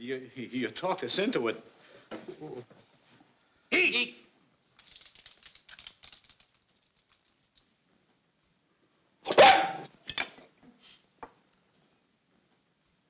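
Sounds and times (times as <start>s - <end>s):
small dog barking: 9.3s - 9.9s.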